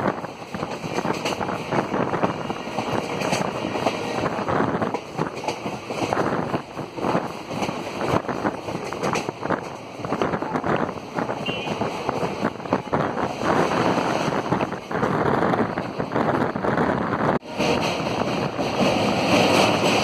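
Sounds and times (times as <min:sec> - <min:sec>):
train carriage running noise: 0:00.0 - 0:20.0
wind buffeting microphone: 0:00.0 - 0:20.0.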